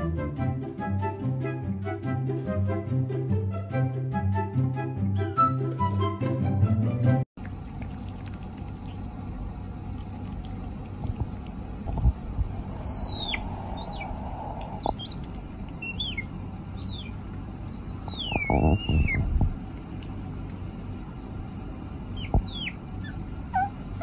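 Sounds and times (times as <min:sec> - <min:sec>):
otter squeaking: 0:12.6 - 0:19.4, 0:22.1 - 0:24.0.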